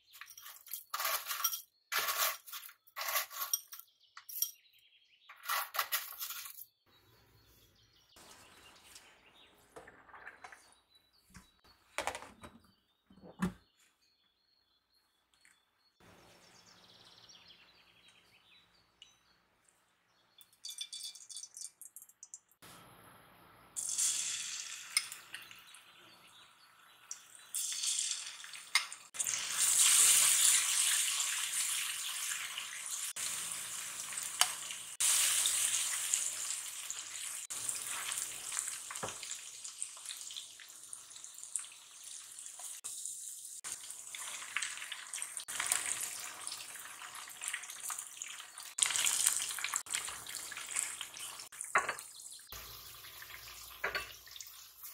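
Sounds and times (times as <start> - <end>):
kitchen hiss of water or frying: 23.8 - 25.3, 27.5 - 54.9.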